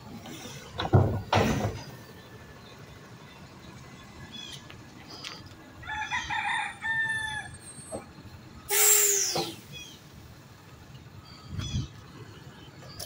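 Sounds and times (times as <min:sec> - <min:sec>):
rooster crowing: 0:05.8 - 0:07.6
loud hiss: 0:08.7 - 0:09.8.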